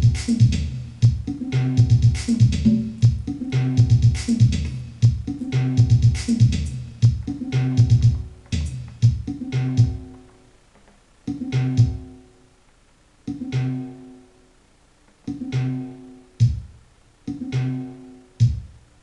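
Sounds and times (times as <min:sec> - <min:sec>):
drum machine hits: 0:00.0 - 0:10.4, 0:11.3 - 0:12.2, 0:13.3 - 0:13.9, 0:15.2 - 0:18.8
stuttering electronic bass loop: 0:00.0 - 0:10.4, 0:11.3 - 0:12.3.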